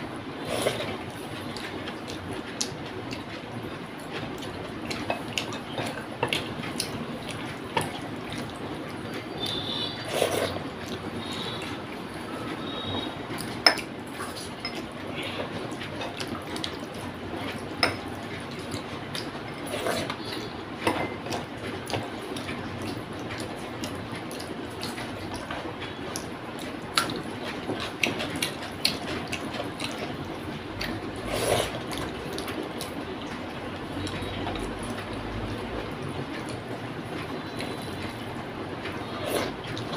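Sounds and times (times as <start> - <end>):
chewing: 0.0 - 39.9
fingers squelching wet food: 21.3 - 39.9.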